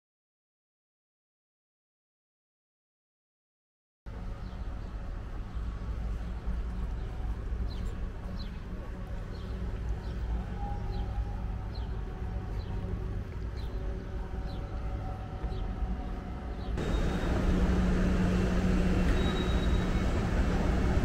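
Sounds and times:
electric train rumble: 0:04.1 - 0:21.0
escalator humming: 0:13.7 - 0:21.0.

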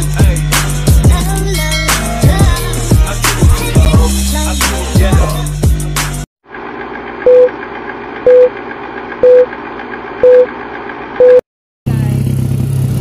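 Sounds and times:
short loud beeps: 0:08.3 - 0:08.5, 0:09.2 - 0:09.5, 0:10.2 - 0:10.5, 0:11.2 - 0:11.4.

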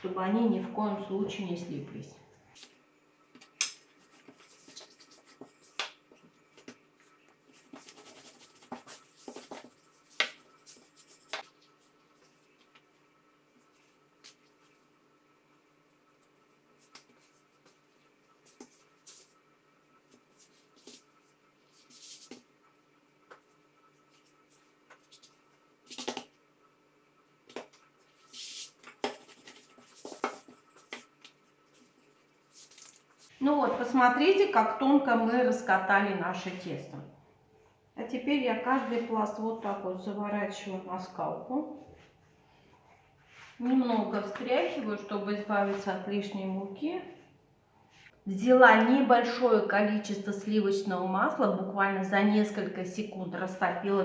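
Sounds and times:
dough slapping and rustling: 0:07.4 - 0:12.9, 0:27.5 - 0:32.0.

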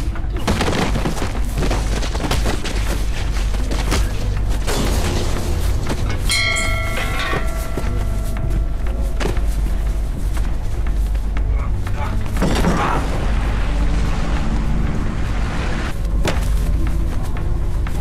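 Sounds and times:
steady low rumble: 0:00.0 - 0:18.0
thuds and knocks of scuffling: 0:00.4 - 0:13.2, 0:16.0 - 0:18.0
ship's bell ringing: 0:06.1 - 0:10.2.

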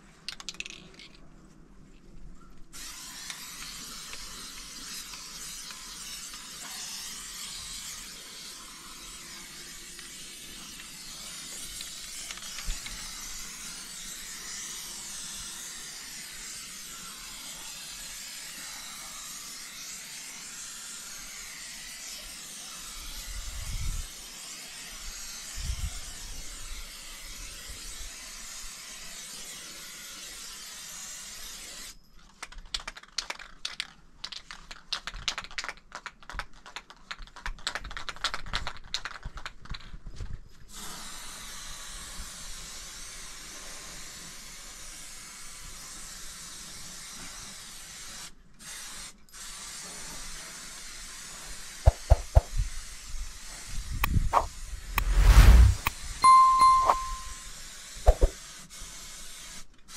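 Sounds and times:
spray can being shaken: 0:02.8 - 0:13.9, 0:32.5 - 0:39.9, 0:51.9 - 0:52.6, 0:58.1 - 0:59.0
spray paint can hissing: 0:02.8 - 0:22.9, 0:51.9 - 0:53.0, 0:58.1 - 0:59.6.

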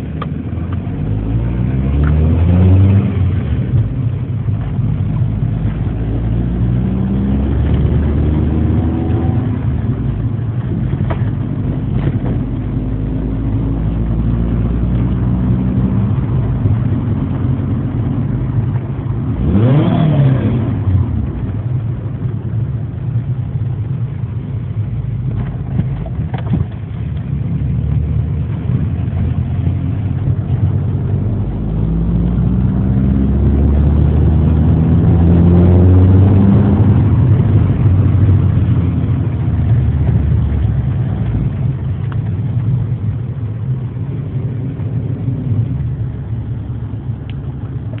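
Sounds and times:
car engine revving: 0:00.0 - 0:22.6, 0:25.0 - 0:48.0.

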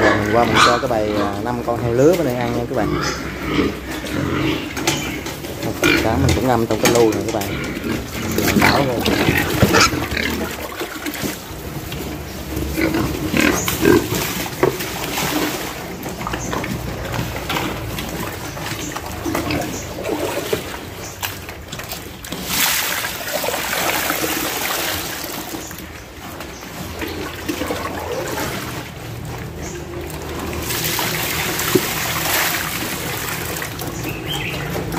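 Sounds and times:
piglets slurping from trough: 0:00.0 - 0:34.9.

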